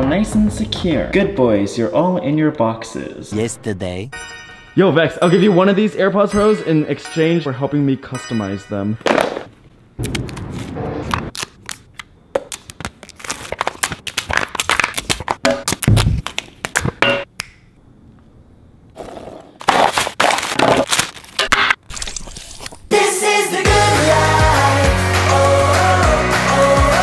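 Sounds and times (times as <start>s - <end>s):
plastic wrapper crinkling: 11.3s - 16.8s, 19.6s - 21.4s.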